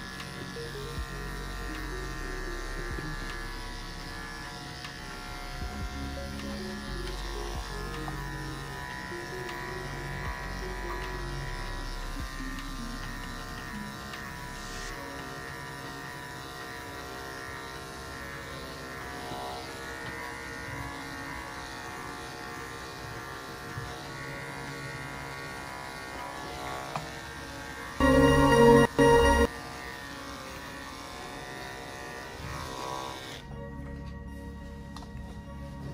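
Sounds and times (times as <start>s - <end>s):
electric dog clippers humming: 0.0s - 33.5s
music with buzzy sitar-like strings: 0.0s - 35.9s.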